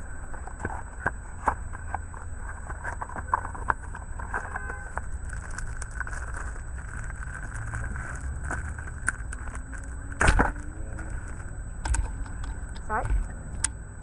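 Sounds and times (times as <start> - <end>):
steady low hum: 0.0 - 14.0
plastic crunch: 0.4 - 13.3
plastic pack crinkling: 2.9 - 11.5.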